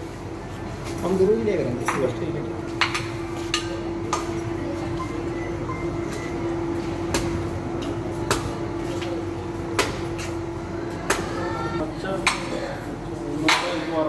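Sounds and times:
steady hum: 0.0 - 14.0
blade chopping coconuts: 13.4 - 13.9.

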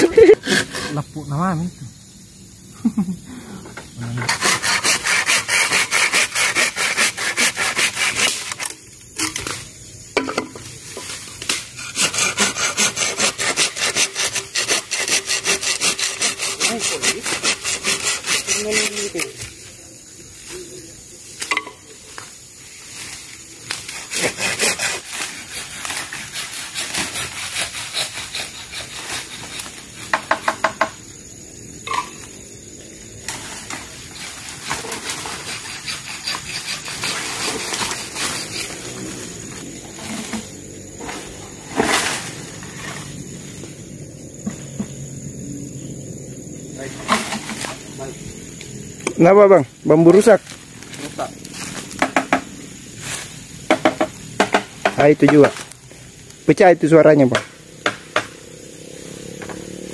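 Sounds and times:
hand saw cutting bamboo: 0.2 - 1.0, 4.1 - 8.8, 11.4 - 19.6, 23.7 - 30.6, 33.3 - 39.3.

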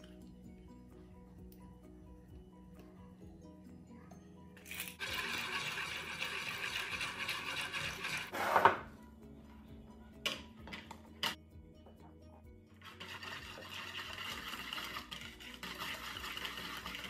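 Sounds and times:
faint background music: 0.0 - 17.0
whisk beating eggs in bowl: 5.0 - 8.3, 12.8 - 17.0.

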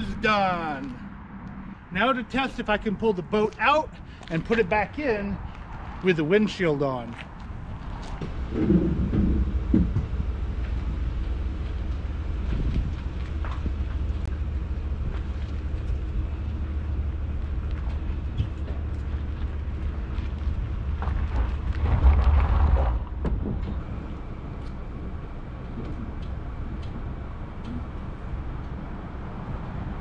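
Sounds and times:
truck engine running low: 7.4 - 30.0.

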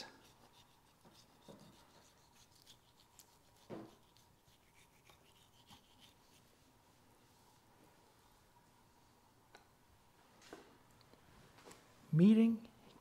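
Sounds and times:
knife scraping ham rind: 0.0 - 6.4.

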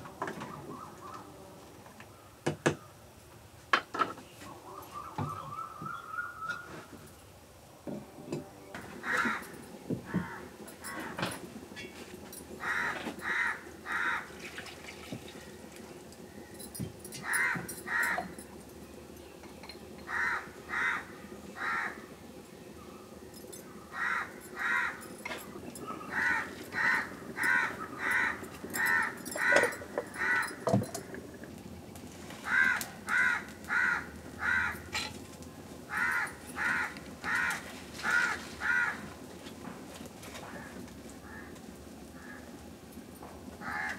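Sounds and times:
crow cawing: 9.0 - 11.2, 12.6 - 14.4, 17.2 - 18.3, 20.1 - 22.1, 23.9 - 25.1, 26.0 - 30.7, 32.4 - 35.0, 35.9 - 39.1, 40.4 - 42.6, 43.6 - 43.9.

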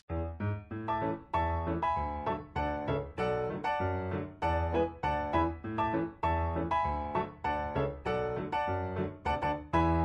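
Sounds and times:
piano tune: 0.0 - 10.0.

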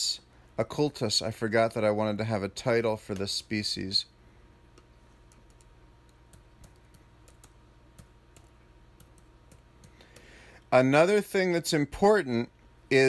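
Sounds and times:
keyboard typing: 5.2 - 10.3.

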